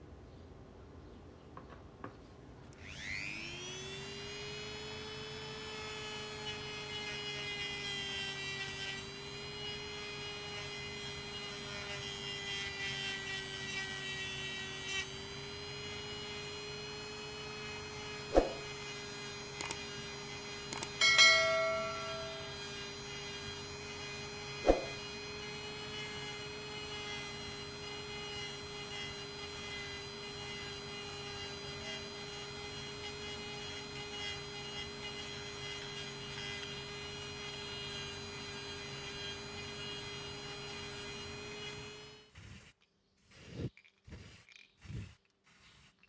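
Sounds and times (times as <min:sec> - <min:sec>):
rotary tool motor whine: 0:02.7 - 0:46.0
short metallic ring: 0:20.9 - 0:22.7.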